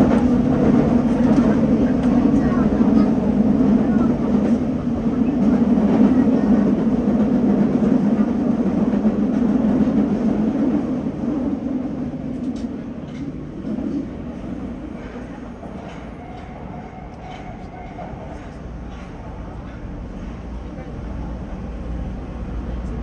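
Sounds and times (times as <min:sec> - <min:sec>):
train rumbling through tunnel: 0:00.0 - 0:23.0.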